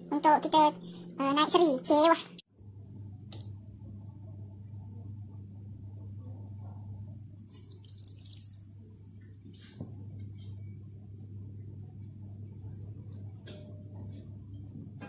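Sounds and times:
water pouring into bowl: 7.6s - 8.7s.

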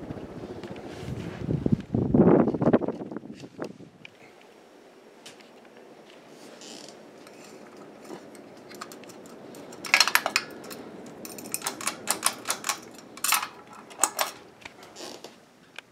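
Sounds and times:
ceiling fan humming: 0.0s - 15.9s
light kit clicking and rattling: 7.2s - 15.1s.

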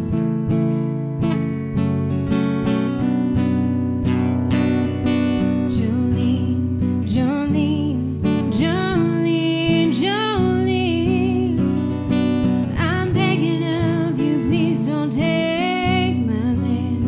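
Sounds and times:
strummed acoustic guitar: 0.0s - 17.0s
woman singing: 5.4s - 17.0s.

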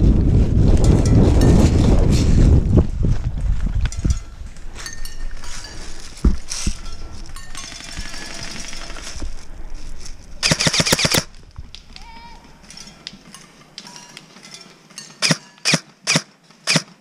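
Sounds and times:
airsoft gun full-auto burst: 10.4s - 11.3s, 15.2s - 17.0s.

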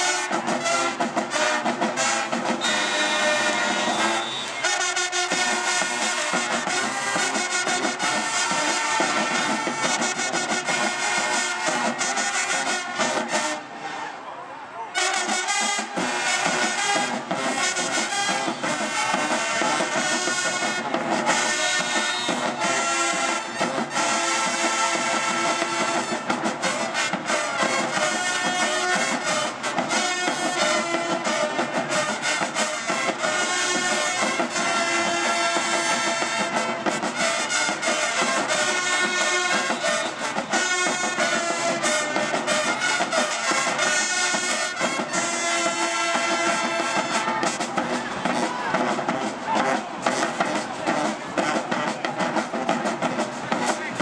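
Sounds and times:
marching band playing: 0.0s - 14.1s, 14.8s - 54.0s.

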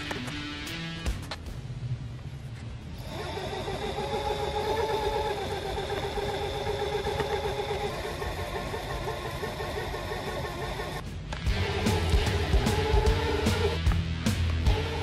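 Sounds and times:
lathe motor drilling aluminum whine: 3.0s - 11.0s.

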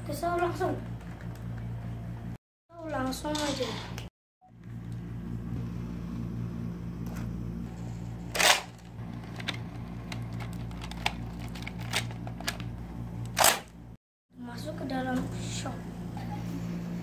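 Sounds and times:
steady low hum: 4.4s - 17.0s
plastic toy blaster clicks and rattles: 8.3s - 12.6s.

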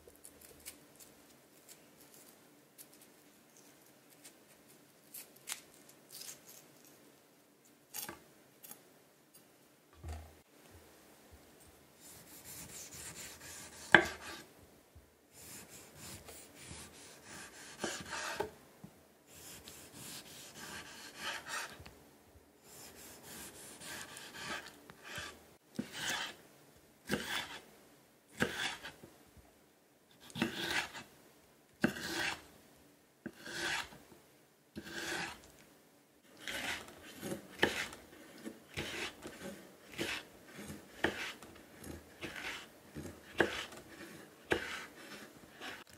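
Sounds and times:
knife cutting tomato on board: 12.0s - 14.5s, 15.4s - 18.5s, 19.3s - 21.8s, 22.6s - 26.4s, 27.0s - 27.6s, 28.3s - 29.0s, 30.2s - 31.1s, 31.8s - 32.5s, 33.2s - 34.0s, 34.8s - 35.5s, 36.4s - 45.9s.

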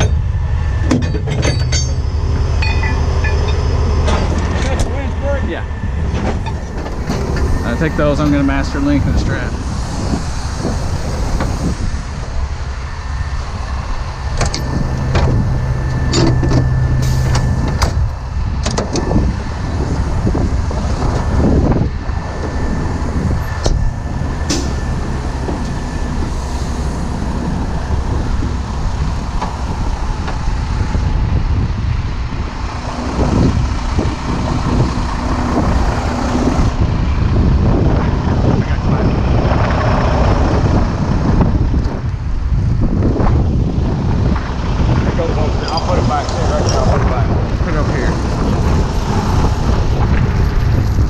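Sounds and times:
rigging hardware clinking: 0.0s - 4.9s
diesel truck engines rumbling: 0.0s - 51.0s.

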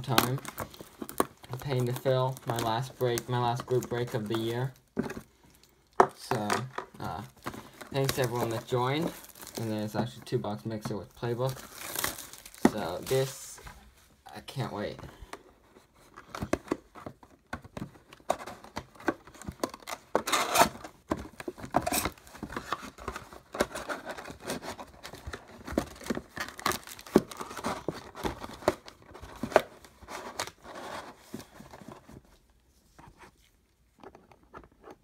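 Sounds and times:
foil crinkling: 7.3s - 10.2s, 11.1s - 13.6s
packaging tearing: 7.4s - 9.7s, 11.5s - 13.4s.

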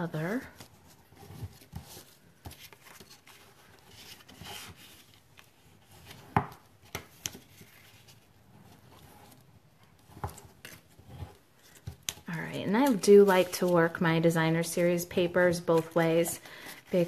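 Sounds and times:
paper rubbing and rustling: 0.2s - 6.3s, 7.0s - 17.0s.

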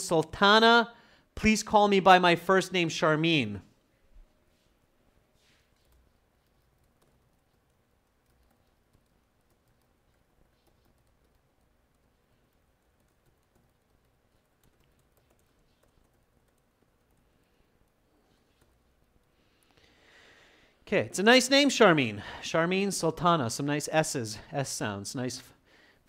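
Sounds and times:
keyboard typing: 5.7s - 19.8s.

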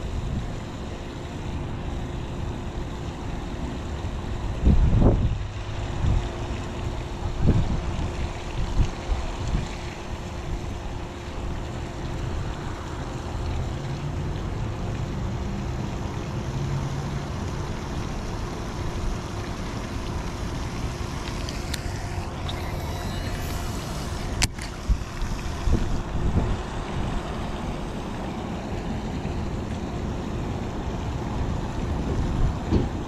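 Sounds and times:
faint steady hum: 0.0s - 33.0s
wind buffeting microphone: 4.4s - 6.4s, 7.2s - 9.9s, 22.3s - 28.0s.

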